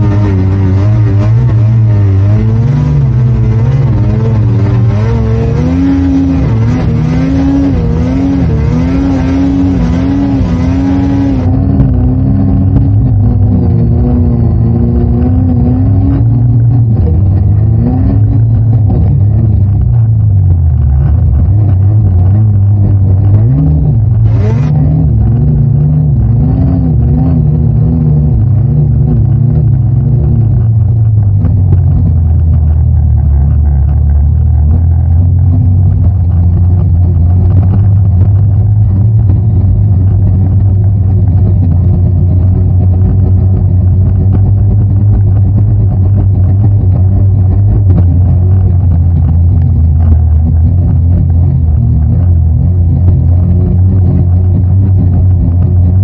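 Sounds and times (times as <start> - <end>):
snowmobile engine revving: 0.0 - 12.7, 23.3 - 28.0.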